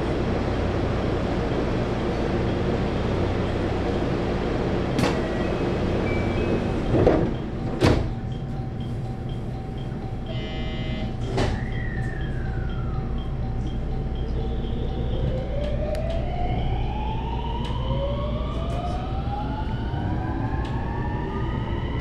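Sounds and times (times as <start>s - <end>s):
electric train humming: 0.0s - 22.0s
sliding doors closing: 4.8s - 8.3s, 11.2s - 12.4s
clunks: 6.9s - 10.4s, 11.0s - 16.2s.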